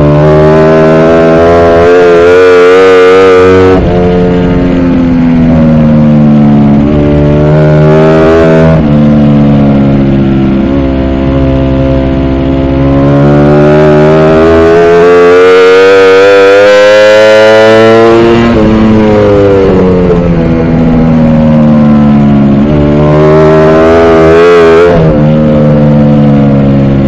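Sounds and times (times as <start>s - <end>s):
motorcycle engine at race pace: 0.0s - 27.0s.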